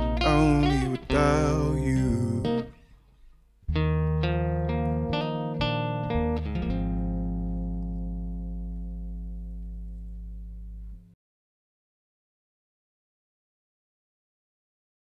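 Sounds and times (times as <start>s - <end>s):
electric bass: 0.0s - 2.8s, 3.7s - 11.2s
acoustic guitar: 0.0s - 11.1s.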